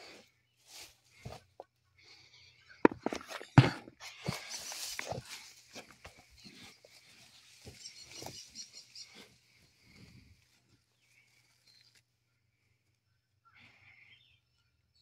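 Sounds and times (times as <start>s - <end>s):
hand digging through soil: 2.9s - 8.5s.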